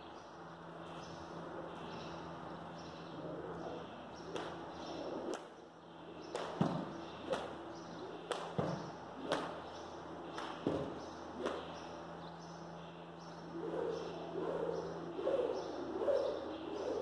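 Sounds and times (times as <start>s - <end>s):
steady low hum: 0.0s - 17.0s
sharp slaps and dull thuds: 4.3s - 4.6s, 6.3s - 7.6s, 8.3s - 9.7s, 10.3s - 11.8s.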